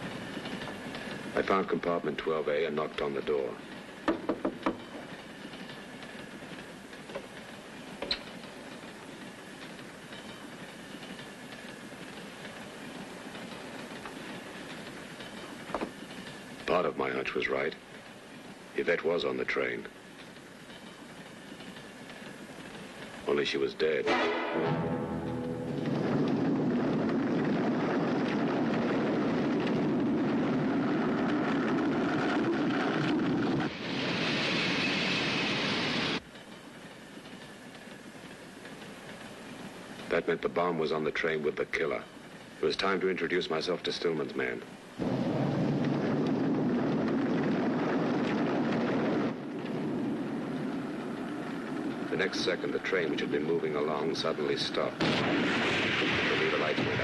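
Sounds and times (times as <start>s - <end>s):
train running noise: 0.0s - 55.0s
avalanche rumble: 24.6s - 36.2s, 45.0s - 57.0s.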